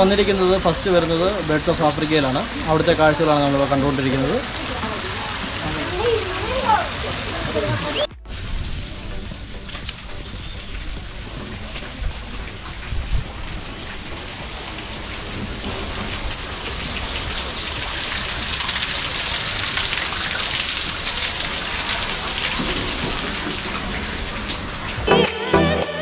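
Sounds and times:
water splashing over rocks: 0.0s - 25.1s
music with a beat: 25.0s - 26.0s.

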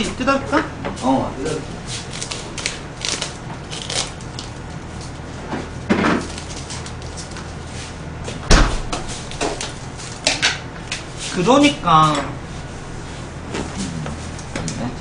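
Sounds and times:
plastic wrap crinkling and tearing: 2.0s - 5.2s.

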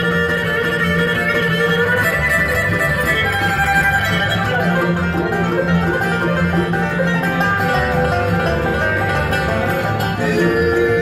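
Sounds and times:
banjo picking: 0.0s - 11.0s
bluegrass band playing: 0.0s - 11.0s
long held notes: 0.0s - 11.0s
upright bass beat: 0.0s - 11.0s.

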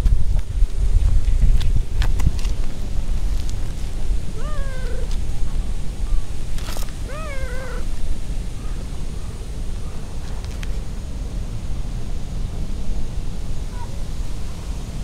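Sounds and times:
wind rumble on microphone: 0.0s - 15.0s
cat meowing: 4.4s - 5.1s, 7.1s - 7.9s.

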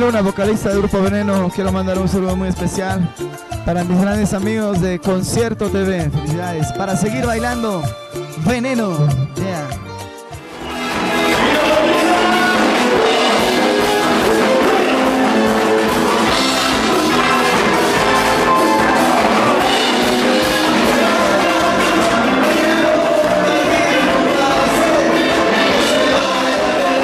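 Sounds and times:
guitar: 0.0s - 27.0s
steady drum beat: 0.1s - 27.0s
person singing: 10.6s - 27.0s.

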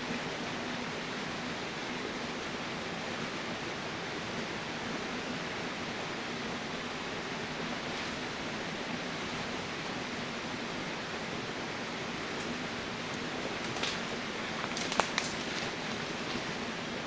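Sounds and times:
steady hiss: 0.0s - 17.0s
faint crackles: 12.4s - 16.6s.

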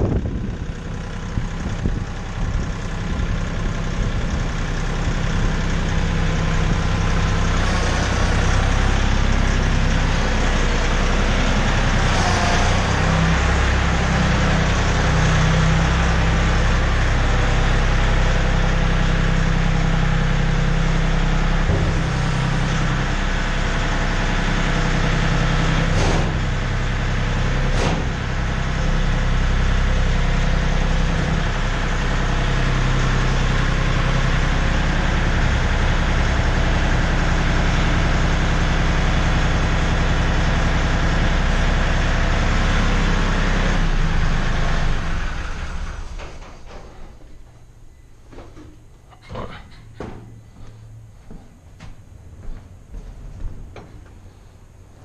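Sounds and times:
tractor engine running: 0.0s - 55.0s.

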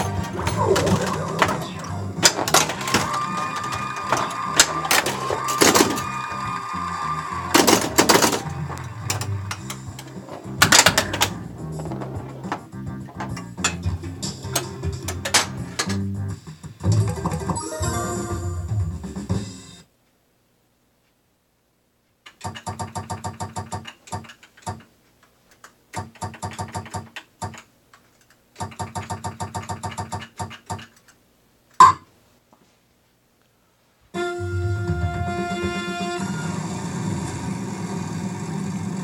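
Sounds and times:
pinball music cue: 0.0s - 19.4s, 34.2s - 37.3s.

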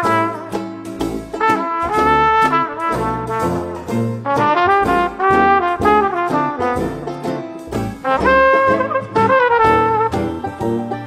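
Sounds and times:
jazz band playing: 0.0s - 11.0s
trombone melody: 0.0s - 11.0s
trumpet melody: 0.0s - 11.0s.

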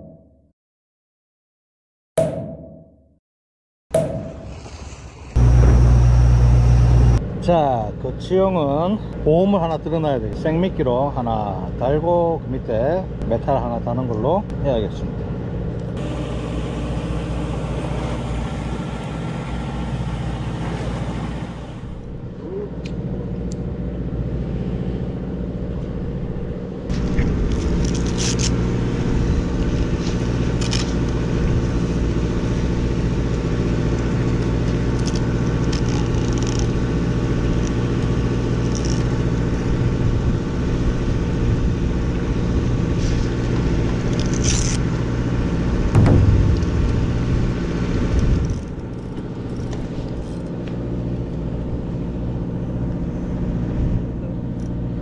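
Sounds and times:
boat engine droning: 4.5s - 7.2s, 15.4s - 27.5s, 28.5s - 54.6s
fishing tackle scraping and clicking: 35.0s - 36.8s, 38.6s - 39.2s, 48.4s - 50.5s.

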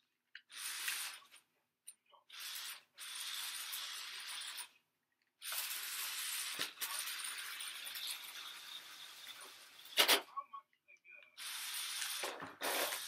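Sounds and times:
toy car motor whirring: 0.4s - 1.4s, 2.3s - 4.8s, 5.4s - 10.0s, 11.4s - 13.0s.

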